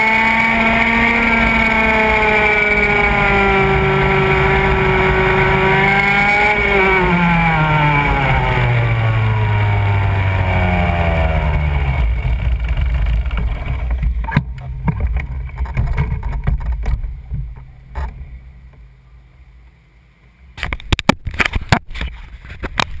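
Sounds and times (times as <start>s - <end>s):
go-kart engine slowing down: 0.0s - 17.0s
knocks and clatter: 12.1s - 18.2s.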